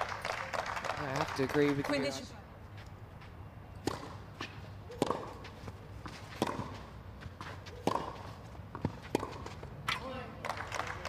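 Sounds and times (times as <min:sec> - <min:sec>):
racket hitting tennis ball: 0:03.8 - 0:10.6.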